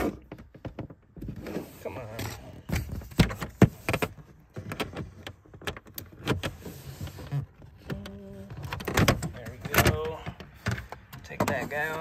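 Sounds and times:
hard plastic clicking and knocking: 2.2 - 6.7, 7.3 - 12.0.

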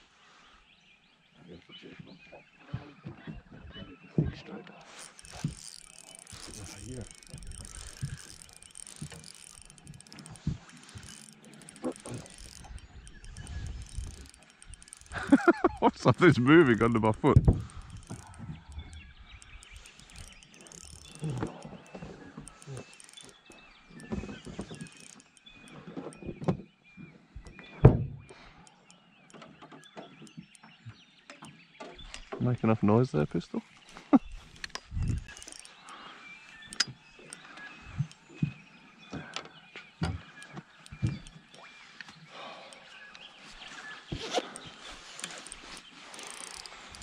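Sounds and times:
fishing reel whirring and clicking: 4.8 - 26.5, 28.3 - 30.7, 34.4 - 38.5, 40.2 - 47.0.

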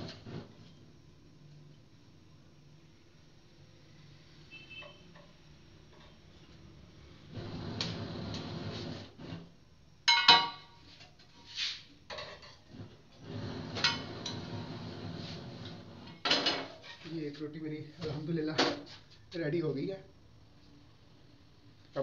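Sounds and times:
metal tongs scraping on stove: 13.6 - 17.1.

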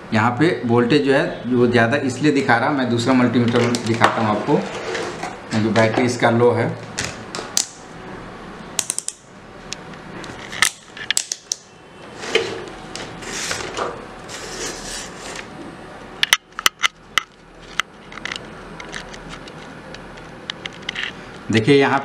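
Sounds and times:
multimeter handling noise: 3.4 - 6.2, 8.8 - 15.5, 16.2 - 21.5.

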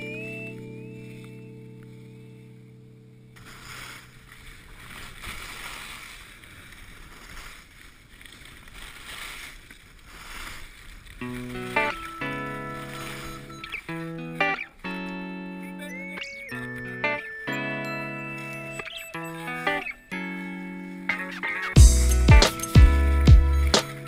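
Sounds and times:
skis carving on packed snow: 3.4 - 14.6
background music: 11.6 - 24.0.

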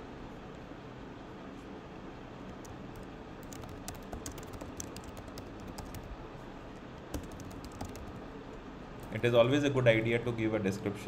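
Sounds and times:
keyboard typing: 2.5 - 8.3.

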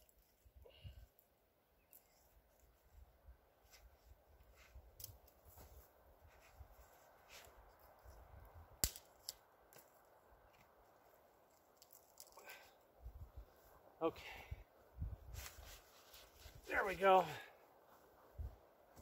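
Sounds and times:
faint clicks and crackles: 11.4 - 12.4.

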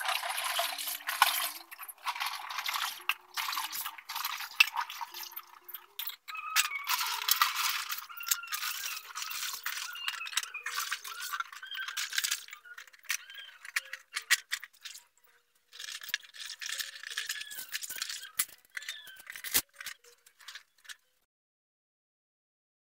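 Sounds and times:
water splashing: 0.0 - 6.1.

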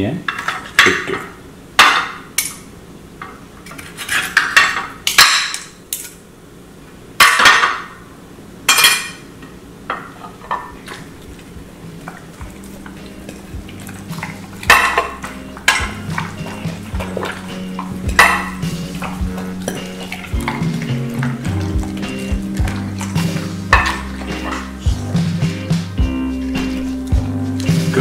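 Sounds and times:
knife scraping on ceramic plate: 3.7 - 4.4.

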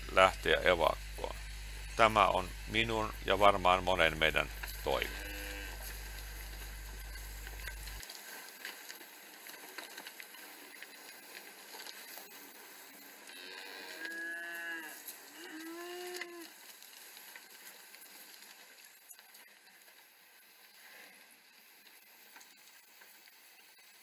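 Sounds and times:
faint steady hiss: 0.0 - 24.0
cows mooing: 4.9 - 5.9, 13.3 - 16.5.

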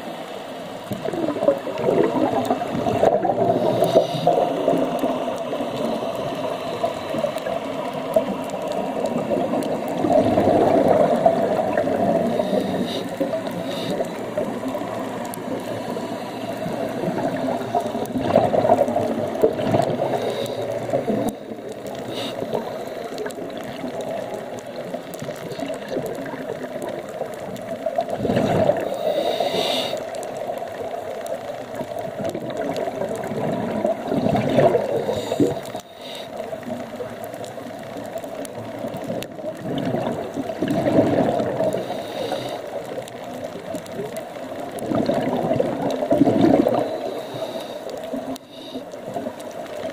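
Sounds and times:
underwater hiss and water noise: 0.0 - 49.9
diver exhaling bubbles underwater: 0.9 - 6.0, 8.8 - 15.6, 16.7 - 22.7, 28.0 - 29.0, 32.2 - 35.6, 39.0 - 41.9, 44.8 - 47.3.

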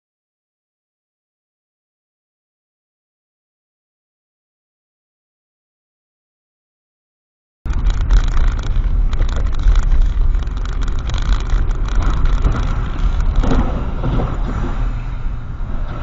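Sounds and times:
small clicks and rattles: 7.7 - 15.1
engine and road rumble: 7.7 - 16.0.

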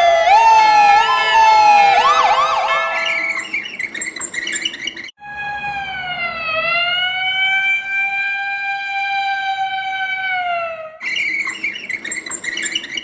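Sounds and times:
emergency siren wailing: 0.0 - 3.6, 5.2 - 11.1.

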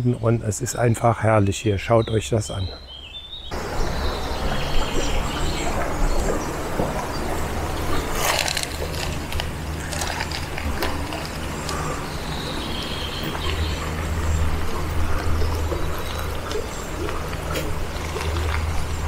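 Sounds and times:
river running over stones: 3.5 - 19.0
wind buffeting microphone: 3.5 - 19.0.

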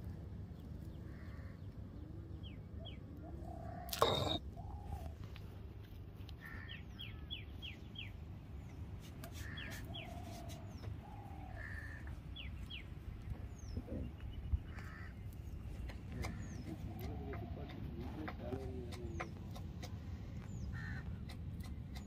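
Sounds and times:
birds chirping: 2.4 - 4.7, 11.1 - 22.0
lower bird calls: 3.2 - 5.1.

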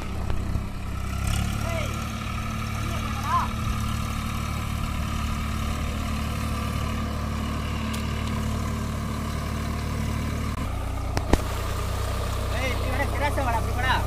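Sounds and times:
tractor diesel engine running: 0.0 - 14.0.

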